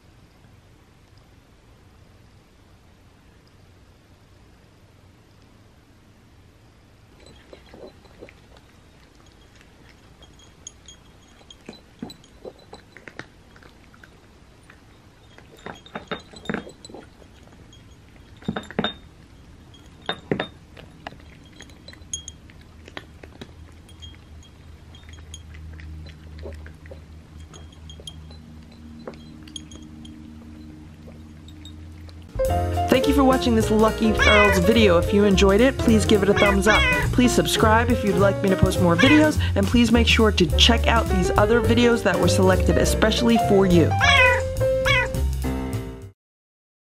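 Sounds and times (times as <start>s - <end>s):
low steady hum: 0.0s - 44.9s
cats crunching food: 7.1s - 32.3s, 33.0s - 38.0s, 39.0s - 39.6s
kibble clinking on ceramic saucers: 7.2s - 32.1s, 33.0s - 37.9s.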